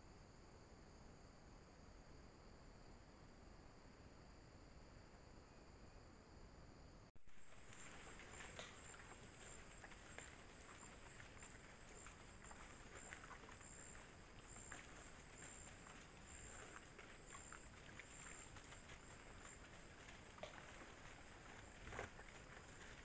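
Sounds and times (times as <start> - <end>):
rustles and clicks of hooves: 7.2 - 23.0.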